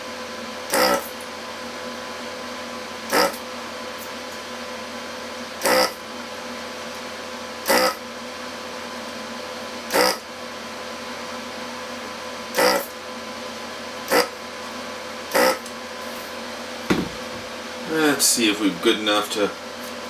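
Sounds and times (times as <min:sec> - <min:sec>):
desoldering vacuum pump bursts: 0:00.7 - 0:01.2, 0:03.1 - 0:03.4, 0:05.6 - 0:06.1, 0:07.6 - 0:08.0, 0:09.9 - 0:10.3, 0:12.5 - 0:13.0, 0:14.1 - 0:14.4, 0:15.3 - 0:15.7.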